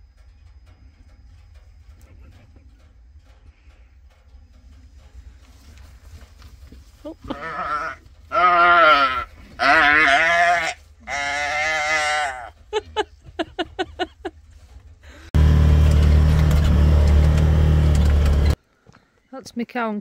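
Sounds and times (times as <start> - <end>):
engine-like rumble with hum: 0.0 - 18.6
sheep bleating: 7.2 - 12.6.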